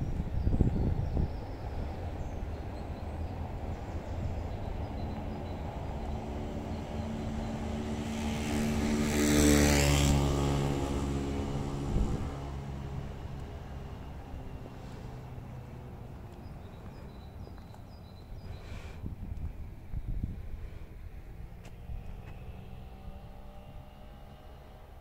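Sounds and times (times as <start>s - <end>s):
wind rumble on microphone: 0.0s - 25.0s
vehicle engine passing by: 3.8s - 17.7s, 20.2s - 25.0s.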